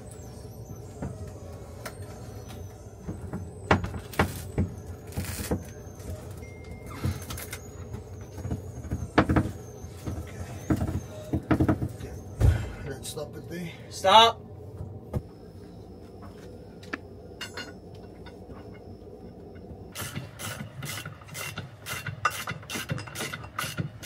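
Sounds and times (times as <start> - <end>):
steady low hum: 0.0 - 24.0
metal knocks and clanks: 8.3 - 13.0.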